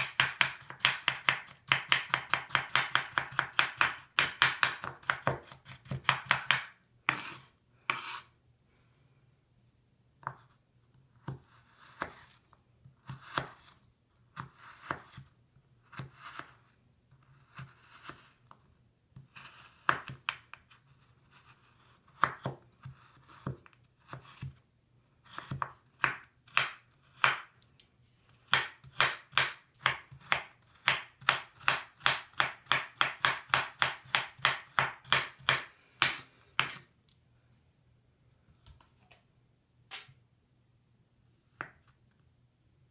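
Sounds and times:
knife chopping on wooden board: 0.0 - 8.2, 22.1 - 24.6, 25.3 - 27.5, 28.5 - 36.8.

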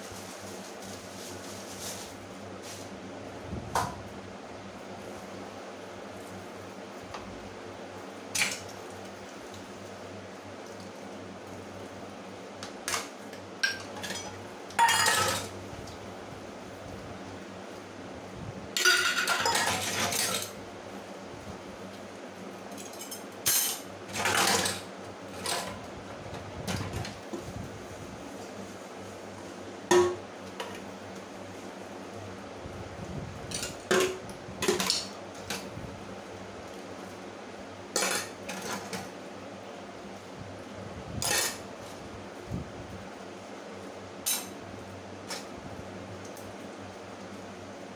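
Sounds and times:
steel utensils clinking in sink: 13.6 - 15.5, 18.8 - 20.6, 22.8 - 24.8, 44.2 - 44.5.

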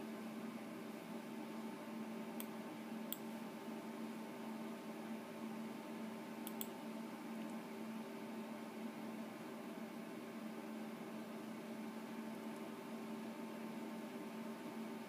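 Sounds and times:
computer mouse clicks: 6.4 - 6.8.

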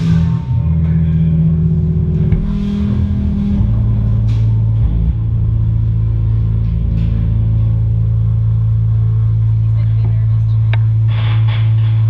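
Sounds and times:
rock band electric guitars and bass: 0.0 - 12.0.

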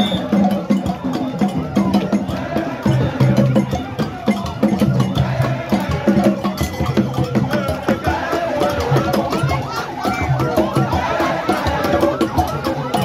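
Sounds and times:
crowd chanting and singing: 0.0 - 13.0
rhythmic drumming: 0.0 - 13.0.

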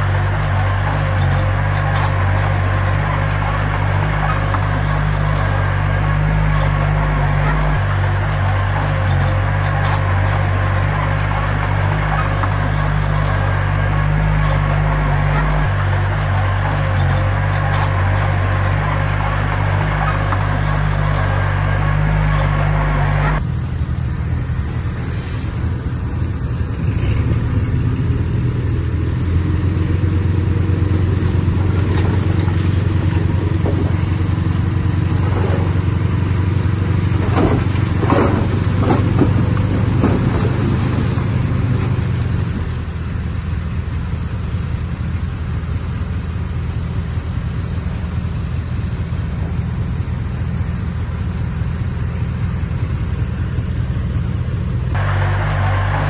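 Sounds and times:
metallic squeals and clanks: 0.0 - 23.4
diesel engine running: 0.0 - 56.0.

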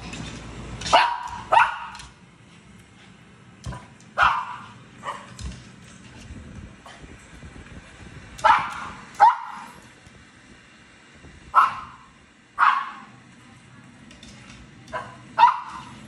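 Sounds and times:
small dog barking: 0.9 - 2.1, 4.2 - 5.4, 8.4 - 9.7, 11.5 - 13.1, 14.9 - 16.0.

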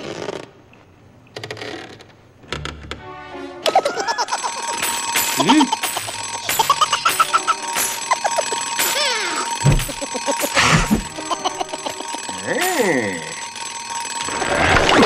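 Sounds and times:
comic sliding tones: 3.6 - 15.0
alarm clock bell ringing: 3.7 - 15.0.

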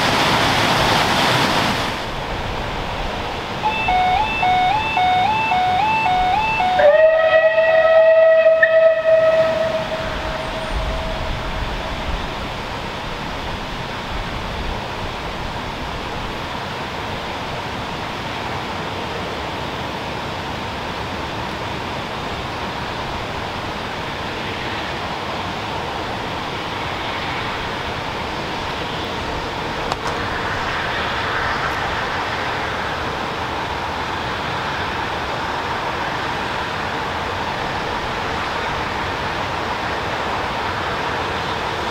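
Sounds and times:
whistle-like tone: 3.6 - 7.3.

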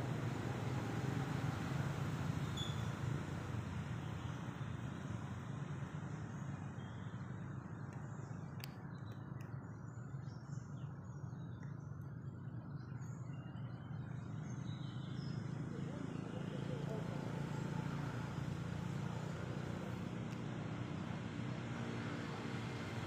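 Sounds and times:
low rumble of road traffic: 0.0 - 23.0
bird chirps: 2.4 - 3.0.

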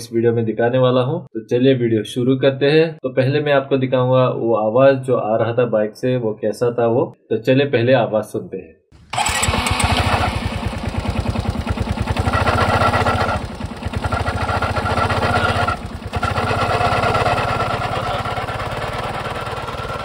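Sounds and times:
drive belt casing noise: 9.0 - 20.0
scooter engine running: 9.0 - 20.0.

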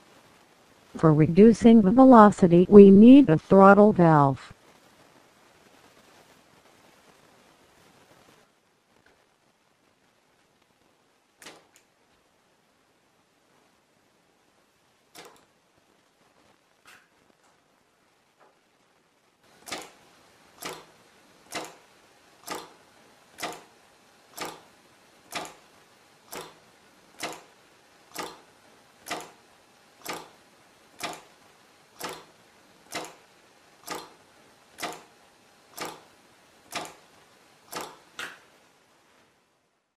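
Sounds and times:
pneumatic actuator sharp clicks: 15.2 - 15.4, 19.6 - 19.9, 20.6 - 20.9, 21.5 - 21.8, 22.4 - 22.8, 23.4 - 23.7, 24.4 - 24.6, 25.3 - 25.6, 26.3 - 26.6, 27.2 - 27.5, 28.1 - 28.4, 29.0 - 29.4, 30.0 - 30.3, 31.0 - 31.3, 32.0 - 32.3, 32.9 - 33.2, 33.8 - 34.2, 34.8 - 35.1, 35.8 - 36.0, 36.7 - 37.0, 37.7 - 38.4.

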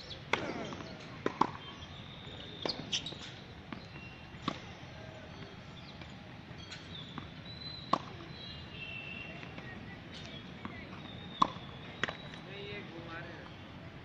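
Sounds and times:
tennis balls bouncing on court: 0.0 - 13.6
racket striking tennis balls: 0.2 - 1.8, 2.4 - 8.5, 9.4 - 12.3.

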